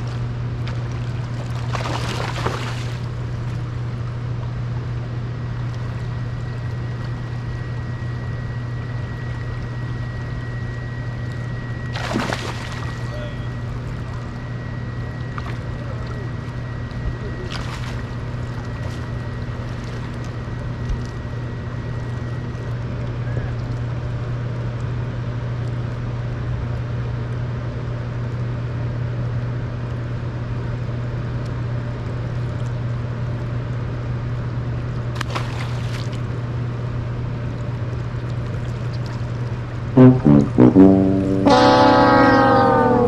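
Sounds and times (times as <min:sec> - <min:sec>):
water and wind noise: 0:00.0 - 0:26.6, 0:34.2 - 0:42.8
boat motor idling: 0:39.4 - 0:43.0
thin high whine: 0:40.0 - 0:43.0.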